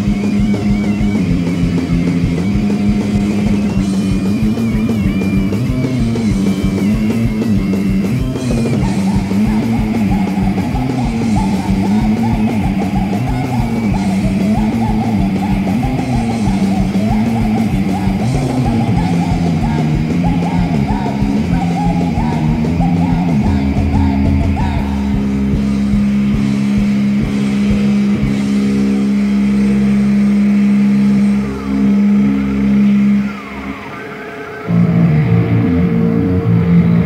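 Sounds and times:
fast drumbeat: 0.0s - 29.0s
distorted electric guitar: 0.0s - 37.0s.

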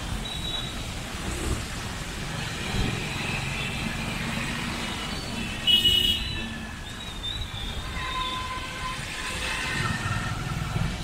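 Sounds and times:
road traffic and engine noise: 0.0s - 11.0s
vehicle horn blast: 5.7s - 6.4s.

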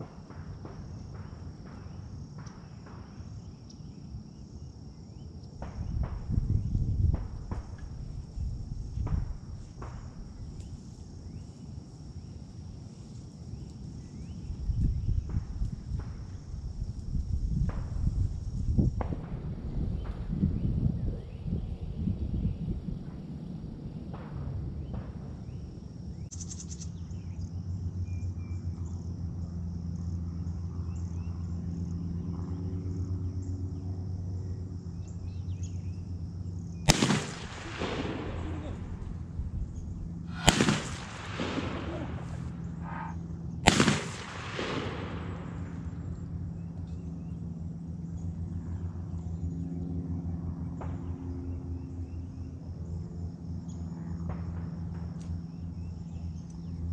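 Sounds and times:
high insect drone: 0.0s - 56.9s
steady low hum: 0.0s - 56.9s
low rumble: 33.2s - 47.4s.

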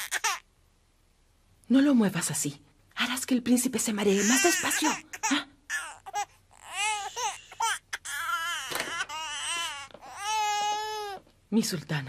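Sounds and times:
infant crying: 0.0s - 0.5s, 4.1s - 11.2s.

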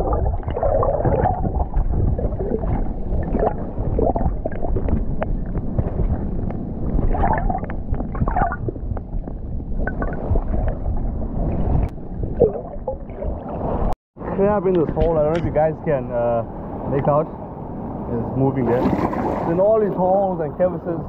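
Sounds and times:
underwater churning and bubbling: 0.0s - 14.0s.

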